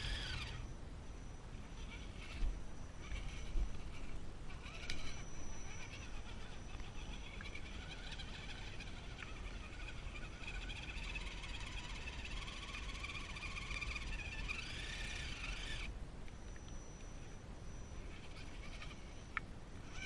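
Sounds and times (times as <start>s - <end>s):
electric motor and gearbox whine: 0.0s - 20.0s.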